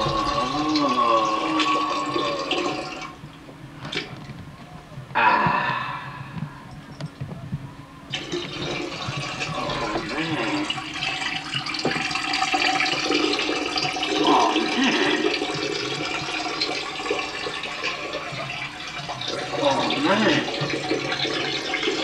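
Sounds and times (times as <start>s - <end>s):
urine splashing into toilet: 0.0s - 3.2s, 8.1s - 22.0s.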